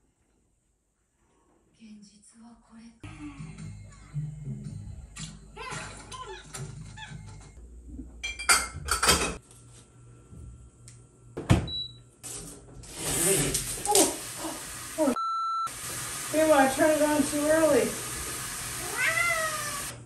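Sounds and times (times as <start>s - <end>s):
dishes and appliance parts knocking: 8.2s - 9.4s.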